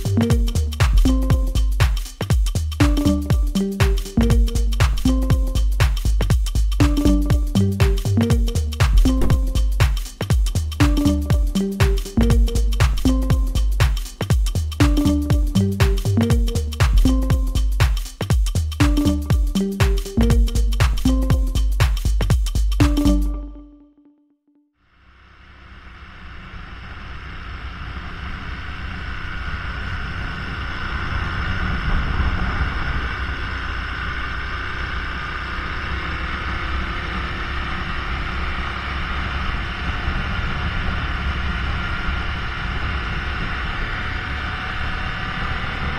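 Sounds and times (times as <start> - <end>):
motorcycle engine and road noise: 6.8 - 9.8, 25.0 - 45.9
wind rush on microphone: 30.0 - 33.6.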